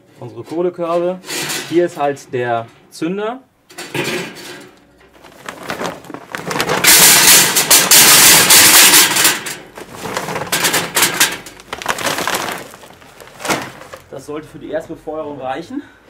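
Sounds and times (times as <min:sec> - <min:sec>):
charcoal briquettes rattling into basket: 0:03.9 - 0:14.2
briquettes clinking: 0:05.1 - 0:14.1
briquettes knocking into basket: 0:09.8 - 0:14.1.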